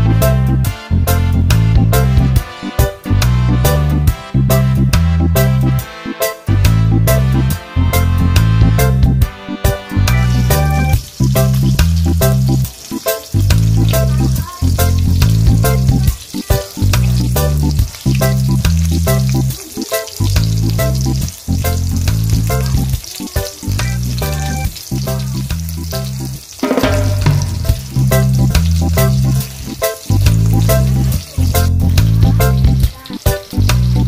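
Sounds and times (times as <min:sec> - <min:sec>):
background music with bass line: 0:00.0 - 0:19.6, 0:20.2 - 0:34.0
fish sizzling in hot oil: 0:09.6 - 0:34.0.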